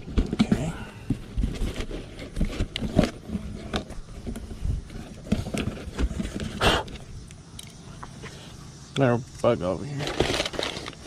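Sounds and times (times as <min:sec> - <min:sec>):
cardboard box scraping and knocking: 0:00.0 - 0:07.0
cardboard rustle: 0:00.0 - 0:07.1, 0:10.0 - 0:11.0.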